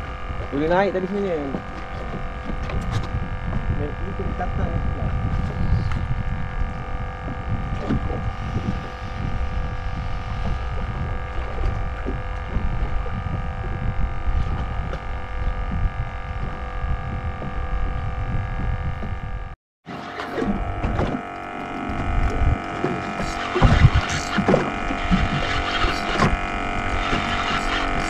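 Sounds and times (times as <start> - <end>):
low rumbling noise: 0.0 - 19.6, 20.3 - 28.0
multi-pitch hum: 0.0 - 28.0.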